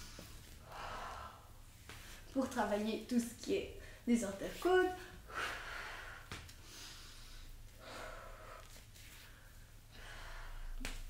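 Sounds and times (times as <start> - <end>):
woman breathing slowly: 0.0 - 2.3, 5.0 - 11.0.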